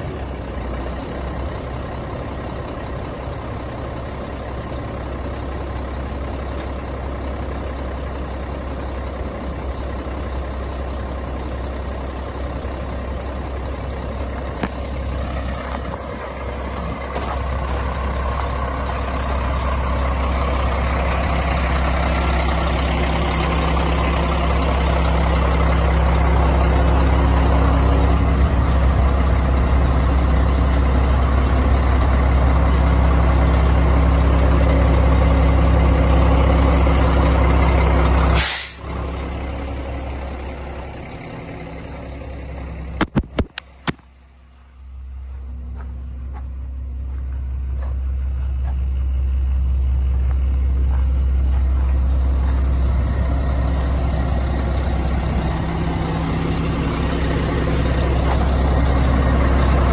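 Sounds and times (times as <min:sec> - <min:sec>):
truck diesel engine running: 0:00.0 - 0:59.9
sharp hiss of released air: 0:38.3 - 0:38.9.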